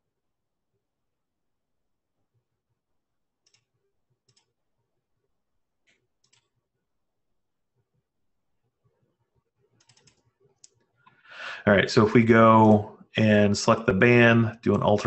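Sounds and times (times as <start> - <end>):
faint computer mouse clicks: 5.9 - 6.5.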